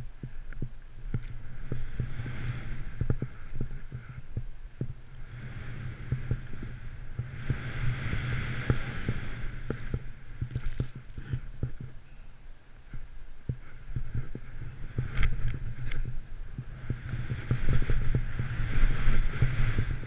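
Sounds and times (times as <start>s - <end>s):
low rumble: 0.0s - 20.0s
snow spraying hiss: 1.0s - 4.2s, 5.1s - 11.9s, 13.6s - 20.0s.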